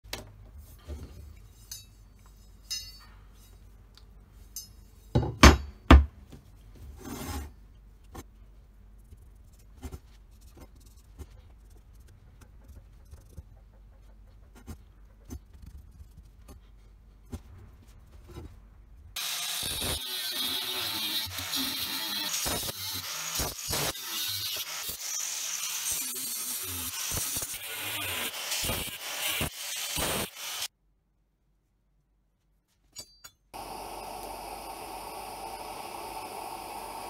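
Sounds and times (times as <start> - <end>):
metal clinks and scrapes: 0.8 - 5.3, 32.8 - 33.5
rubbing scrape: 6.9 - 7.5.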